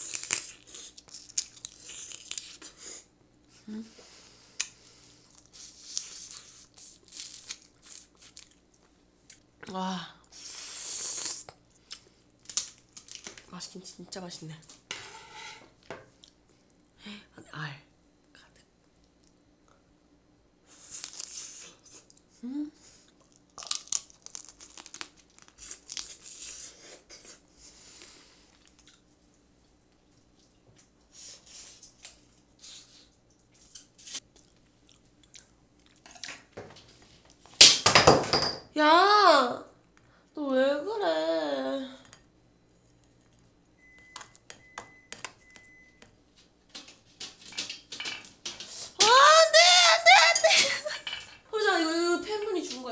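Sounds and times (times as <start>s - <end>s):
crab shell crunching: 23.2s - 26.6s.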